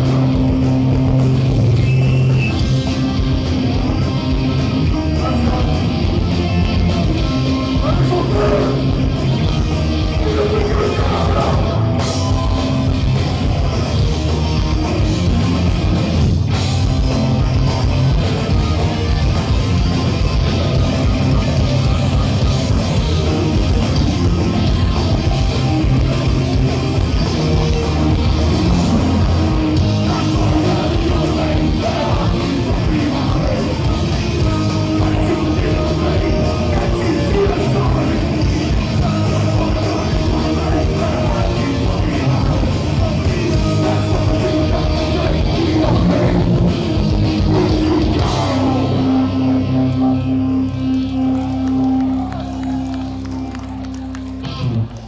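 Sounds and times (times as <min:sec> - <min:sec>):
bass guitar: 0:00.0 - 0:55.0
distorted electric guitars: 0:00.0 - 0:55.0
drums: 0:00.0 - 0:55.0
shouted vocals: 0:07.7 - 0:08.9, 0:10.0 - 0:12.0, 0:28.5 - 0:50.0.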